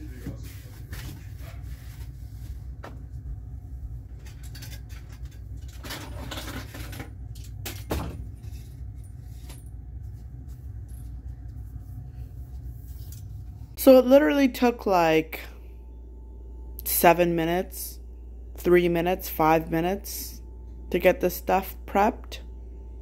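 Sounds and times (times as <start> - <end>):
rustling and scraping: 0.0 - 3.2, 8.3 - 13.8
low hum: 0.0 - 23.0.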